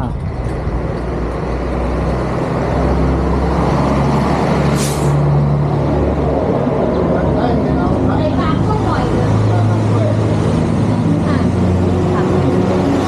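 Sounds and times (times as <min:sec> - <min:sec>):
vehicle engine humming: 0:00.0 - 0:13.0
short sharp hiss: 0:04.8 - 0:05.2.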